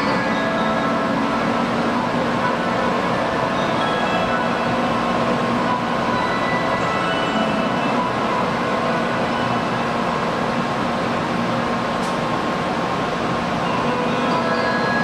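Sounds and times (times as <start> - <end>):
departure melody chimes: 0.0 - 10.0, 13.6 - 15.0
train humming at platform: 0.0 - 15.0.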